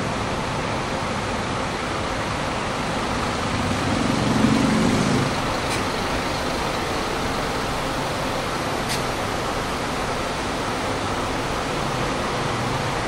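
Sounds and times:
city traffic noise: 0.0 - 13.0
heavy vehicle passing close: 2.9 - 13.0.

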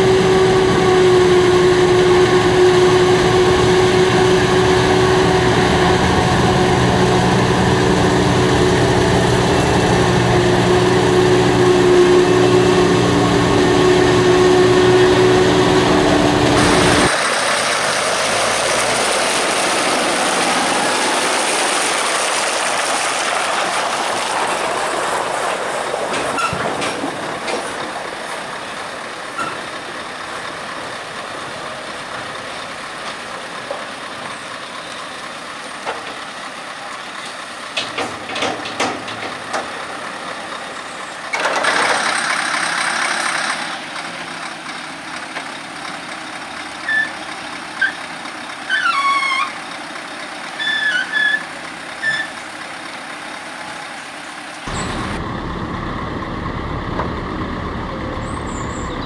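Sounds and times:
heavy low rumble: 54.7 - 59.0.

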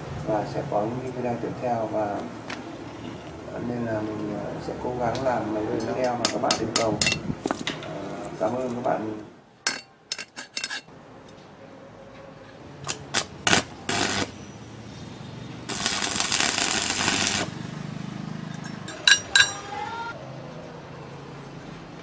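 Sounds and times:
pliers tapping steel tube: 9.7 - 11.4, 18.5 - 19.6
electric arc crackling: 12.9 - 14.4, 15.6 - 17.7.

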